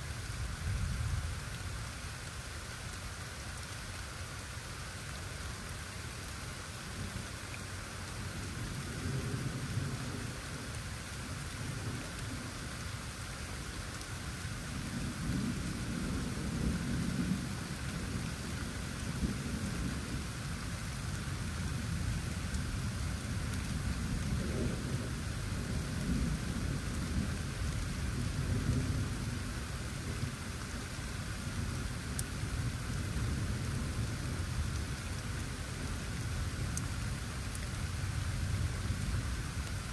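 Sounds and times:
steady rain falling: 0:00.0 - 0:39.9
distant thunder rumbling: 0:21.6 - 0:30.5.

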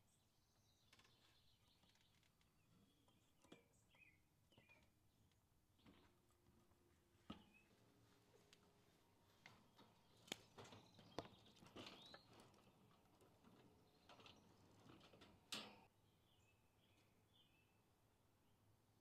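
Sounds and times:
wire cage clicking and rattling: 0:09.5 - 0:15.9.

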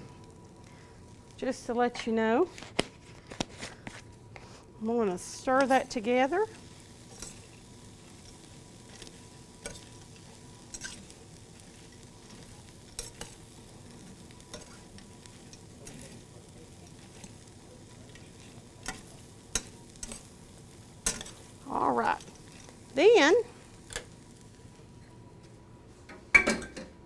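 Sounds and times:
skillet sizzling: 0:00.0 - 0:27.0.

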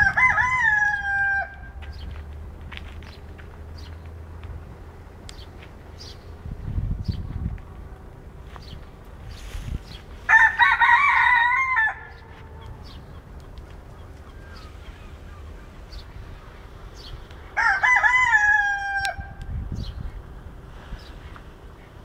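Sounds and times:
rooster crowing: 0:00.0 - 0:01.8, 0:10.2 - 0:13.1, 0:17.5 - 0:19.4.

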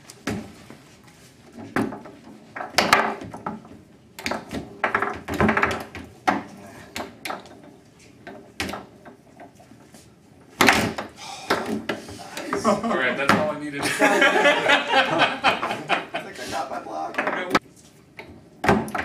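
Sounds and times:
foosball rods clacking: 0:00.1 - 0:13.5, 0:17.1 - 0:19.0
foosball ball knocks: 0:01.6 - 0:09.2, 0:10.5 - 0:12.6, 0:13.2 - 0:13.5, 0:18.6 - 0:19.0.

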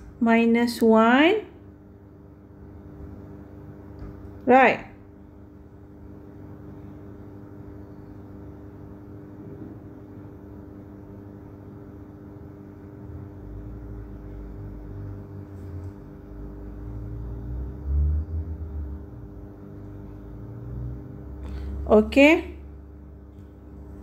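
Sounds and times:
low background hum: 0:00.0 - 0:24.0.

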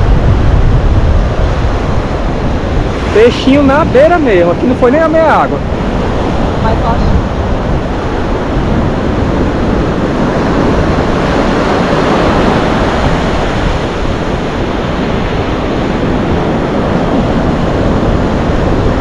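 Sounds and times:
ocean surf breaking: 0:00.0 - 0:19.0
wind on microphone: 0:00.0 - 0:19.0.

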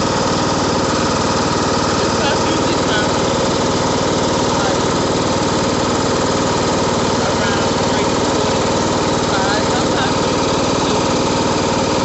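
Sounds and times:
lawn mower engine idling: 0:00.0 - 0:12.0.

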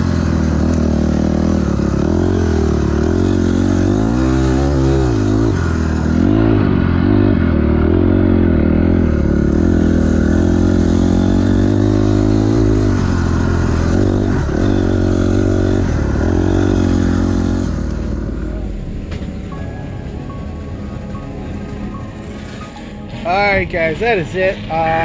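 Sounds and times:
dirt bike engine revving: 0:00.0 - 0:19.5.

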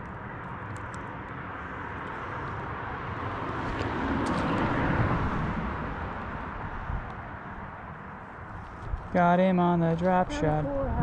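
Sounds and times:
car passing overhead: 0:00.5 - 0:09.0.

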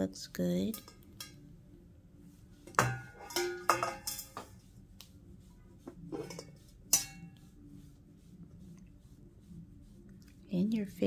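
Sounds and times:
dishes and cutlery clinking: 0:00.7 - 0:01.5, 0:02.7 - 0:04.6, 0:06.1 - 0:07.4.

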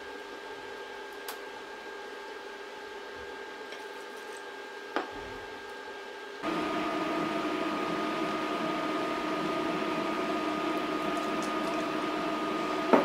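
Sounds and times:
steady machine hum: 0:06.4 - 0:13.0.

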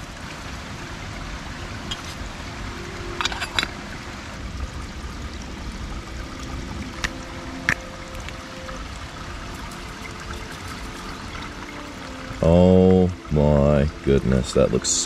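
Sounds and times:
creek trickling: 0:00.0 - 0:15.0
camp gear clicking: 0:03.2 - 0:03.7.

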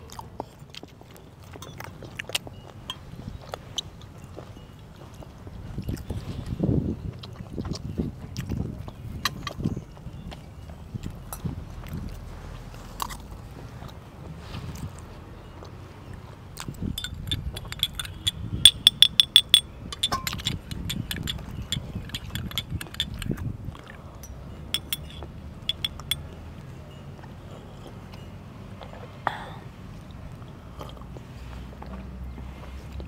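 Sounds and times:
teaspoon clinking against teacup: 0:16.9 - 0:23.4, 0:24.2 - 0:26.2.

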